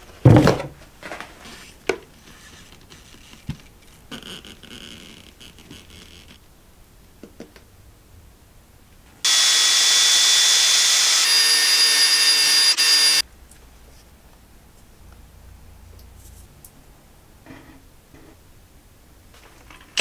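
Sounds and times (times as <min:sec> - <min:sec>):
cordless drill whining: 0:09.3 - 0:13.2.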